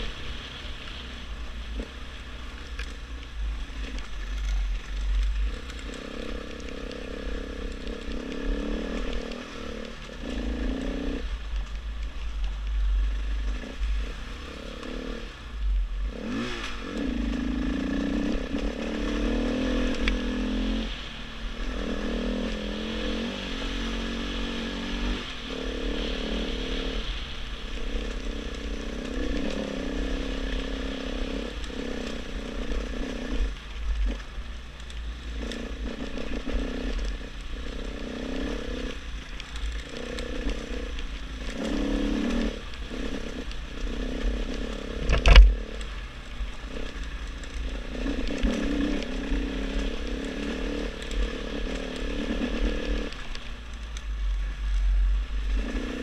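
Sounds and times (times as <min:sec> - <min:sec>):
wind rumbling on microphone: 0:00.0 - 0:56.0
dirt bike engine revving: 0:04.8 - 0:11.3, 0:16.0 - 0:34.3, 0:35.3 - 0:53.2, 0:55.0 - 0:56.0.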